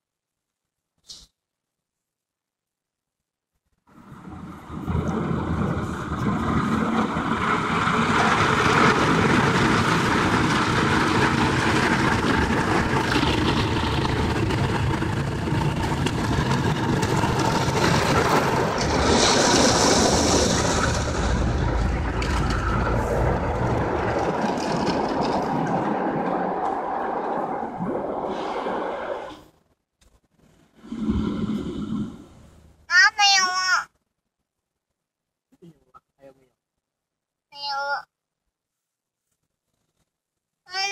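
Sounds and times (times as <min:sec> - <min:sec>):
car wash rushing and rumbling: 0:03.9 - 0:29.4.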